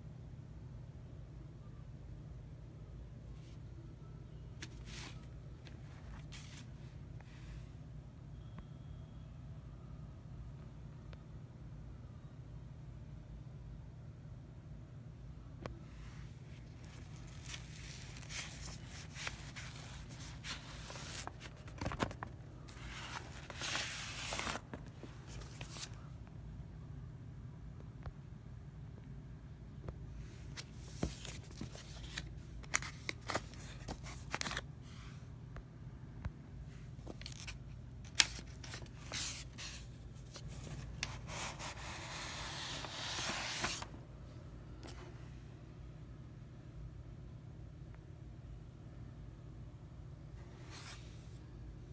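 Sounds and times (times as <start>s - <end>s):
paper sleeve rubbing and rustling: 16.9s - 24.7s, 37.2s - 43.9s.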